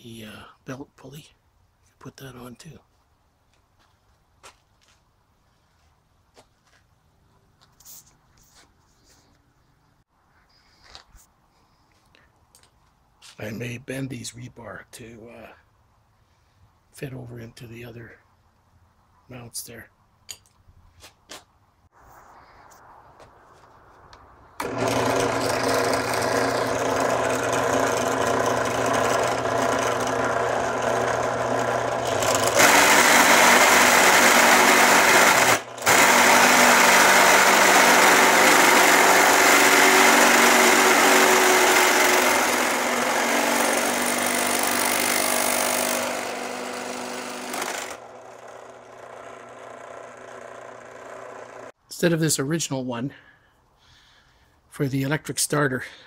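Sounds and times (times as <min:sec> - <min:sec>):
drill bit cutting steel: 0:24.6 - 0:51.7
drill press motor hum: 0:24.6 - 0:51.8.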